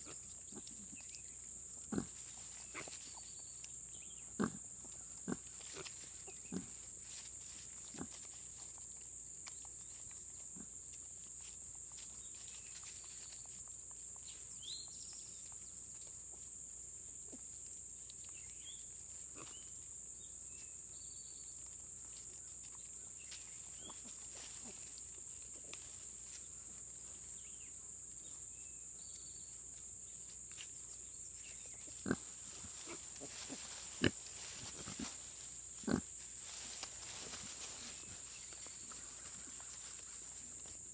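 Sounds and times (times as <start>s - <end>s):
pigs grunting: 1.8s - 3.0s, 4.3s - 6.8s, 31.9s - 35.1s, 35.8s - 36.1s.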